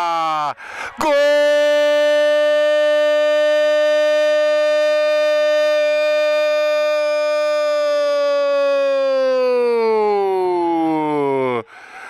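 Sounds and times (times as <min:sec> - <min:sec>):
commentator shouting goal: 0:00.0 - 0:04.4.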